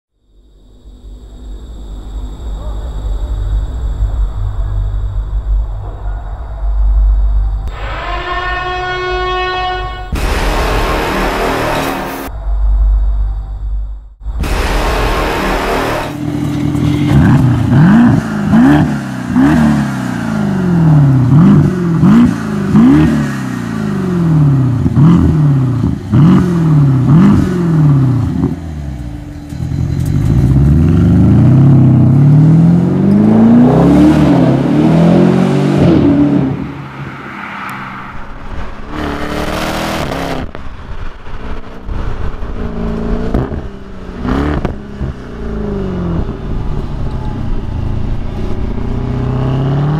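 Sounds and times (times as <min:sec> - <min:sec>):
car driving: 0:00.9 - 0:49.9
loud rushing burst: 0:07.7 - 0:12.7, 0:14.2 - 0:24.3
car engine revving: 0:14.3 - 0:49.9.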